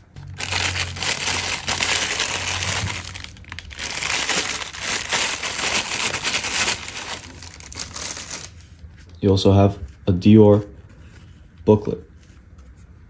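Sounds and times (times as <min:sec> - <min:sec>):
plastic bag crinkling: 0:00.1 - 0:08.6.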